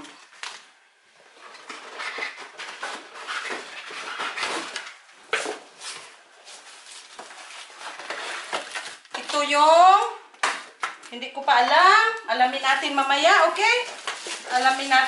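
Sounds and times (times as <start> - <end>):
cardboard and packing rustling: 0.0 - 9.5, 12.8 - 15.0.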